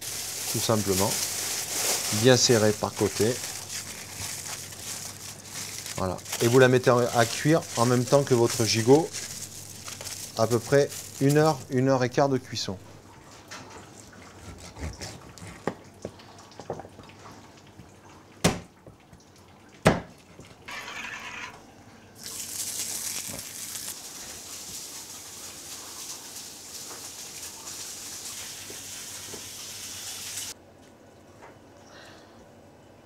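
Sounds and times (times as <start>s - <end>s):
meat sizzling on a griddle: 22.3s - 25.4s, 26.2s - 30.6s.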